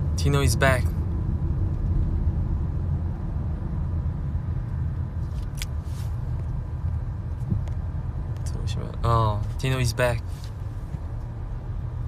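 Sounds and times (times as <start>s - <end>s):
car cabin rumble: 0.0s - 12.0s
faint rustles: 5.2s - 6.5s.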